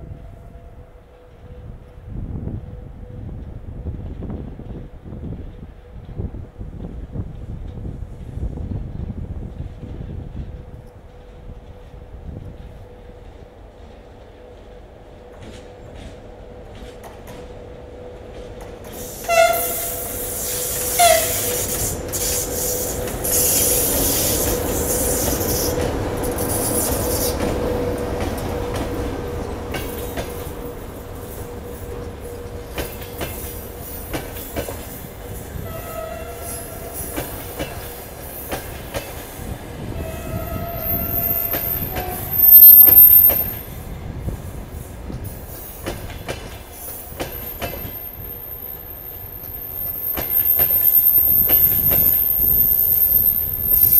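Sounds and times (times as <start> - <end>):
locomotive humming past: 0.0 - 53.9
train wheel clatter: 18.2 - 35.8, 36.4 - 53.9
locomotive horn blasts: 19.2 - 24.2, 35.6 - 37.1, 40.0 - 43.6
high wheel squeals: 40.0 - 43.7, 47.9 - 53.9.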